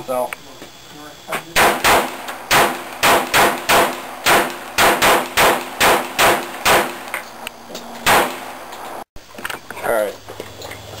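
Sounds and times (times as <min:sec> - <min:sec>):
handgun shots: 0:01.6 - 0:07.2, 0:08.0 - 0:08.7.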